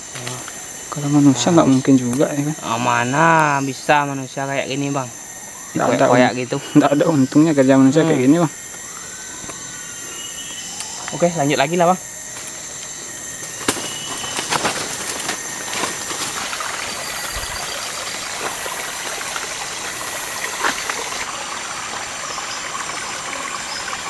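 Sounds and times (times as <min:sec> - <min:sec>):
stream running over rocks: 0:00.0 - 0:24.0
footsteps on leaf litter: 0:12.3 - 0:21.3.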